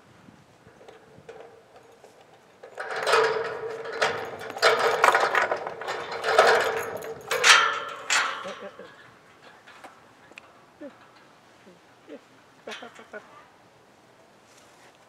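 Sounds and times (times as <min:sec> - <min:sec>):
metal gate chain rattling: 0:00.7 - 0:11.4, 0:12.7 - 0:13.2.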